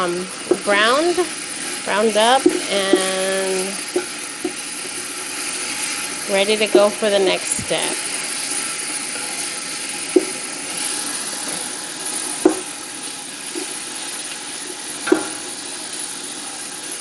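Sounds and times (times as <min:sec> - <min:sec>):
bacon sizzling in a pot: 0:00.0 - 0:17.0
wooden spatula knocking pot: 0:00.5 - 0:00.8, 0:03.9 - 0:05.0, 0:10.1 - 0:10.4, 0:12.4 - 0:12.8.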